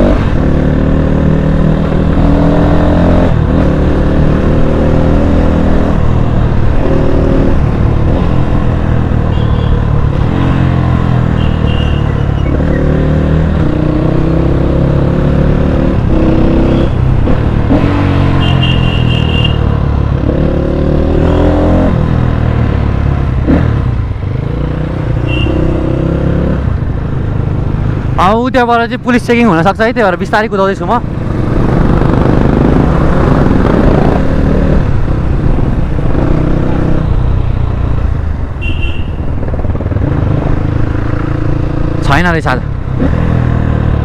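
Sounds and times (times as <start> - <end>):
dirt bike engine revving: 9.5 - 19.6, 31.2 - 34.9.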